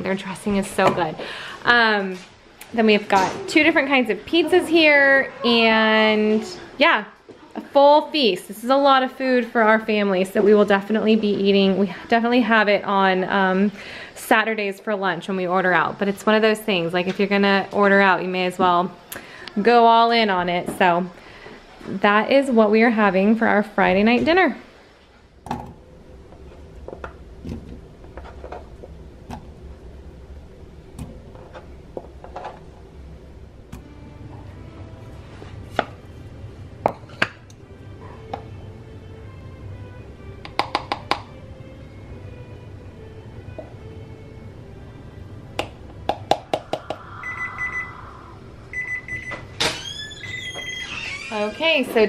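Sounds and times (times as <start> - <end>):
low steady hum: 0.0 - 50.6
electronic timer beeping: 47.2 - 48.1, 48.7 - 49.5.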